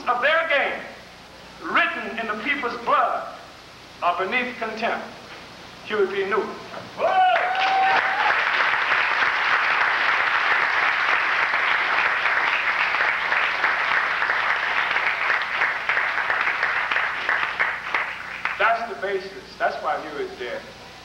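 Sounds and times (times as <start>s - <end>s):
audience applauding: 7.2s - 18.7s.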